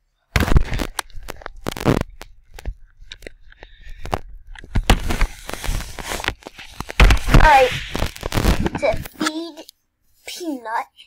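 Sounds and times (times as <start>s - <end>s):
plastic clicks and knocks: 0.4s - 7.4s.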